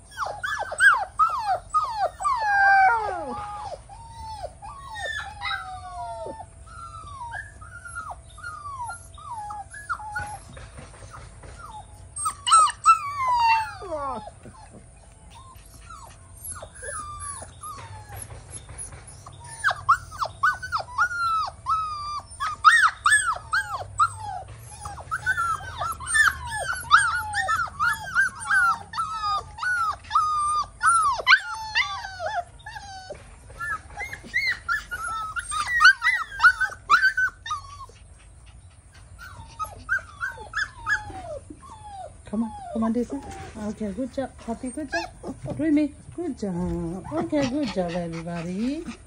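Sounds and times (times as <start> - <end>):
puppies whining and crying: 0.0 - 49.0.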